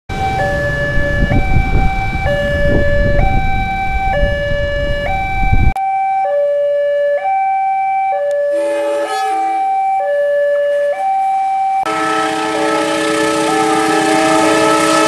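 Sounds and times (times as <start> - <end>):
level crossing two-tone alarm: 0.1 - 15.0.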